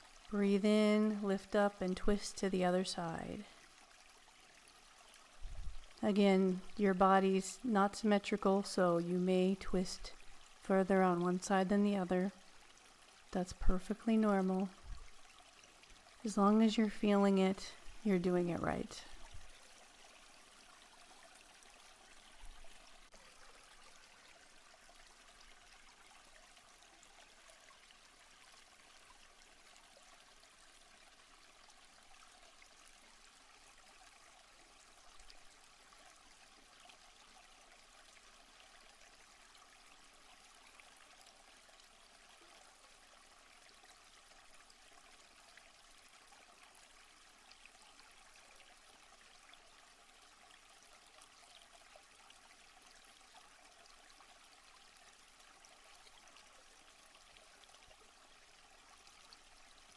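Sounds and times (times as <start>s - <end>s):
stream water running: 0.0s - 59.9s.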